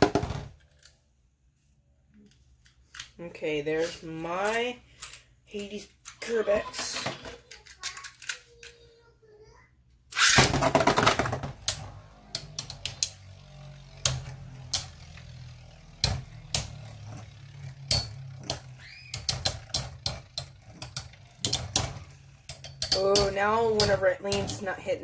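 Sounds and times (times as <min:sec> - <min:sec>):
spinning tops whirring: 0:10.1 - 0:25.0
spinning tops clacking: 0:10.2 - 0:24.8.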